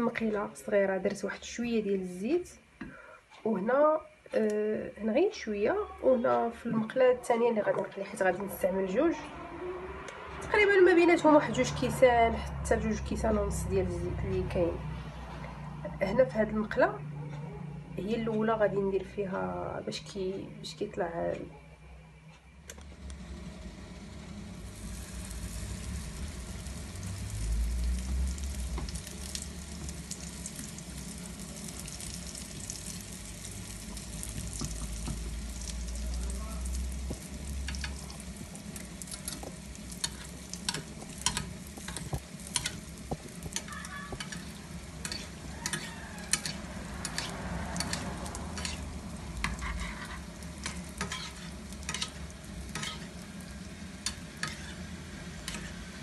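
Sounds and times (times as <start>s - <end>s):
dough sizzling in hot oil: 23.1s - 56.0s
spoon scraping a pan: 37.1s - 53.3s, 54.0s - 55.9s.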